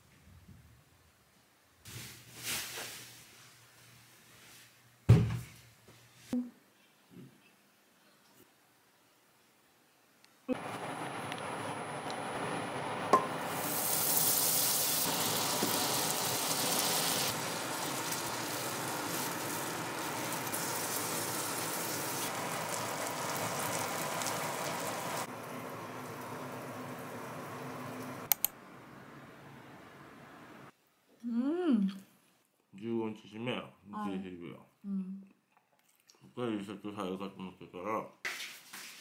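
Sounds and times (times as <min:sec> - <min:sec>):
food sizzling in oil: 0:10.5 - 0:28.3
sharp clicks: 0:28.3 - 0:28.6.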